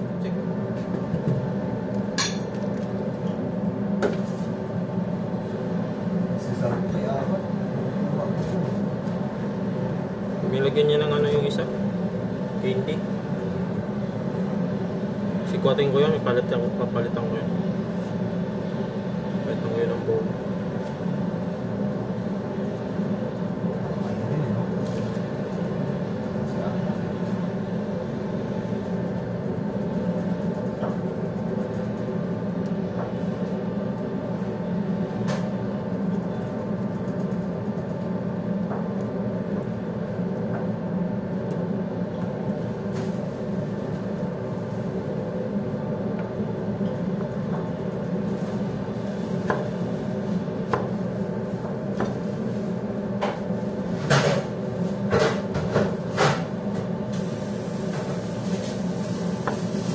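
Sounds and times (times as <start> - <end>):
loud machine hum: 0.0 - 59.9.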